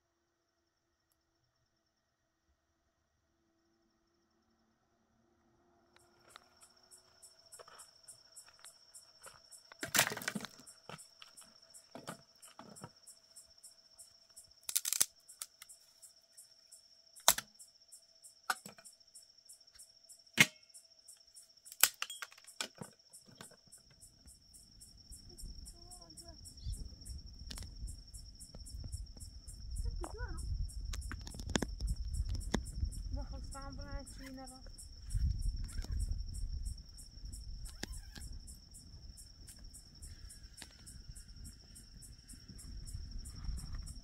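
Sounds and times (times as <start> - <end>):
crickets chirping: 0.0 - 44.0
dry branches snapping: 9.8 - 10.6, 14.6 - 15.6, 17.2 - 17.5, 21.7 - 22.1.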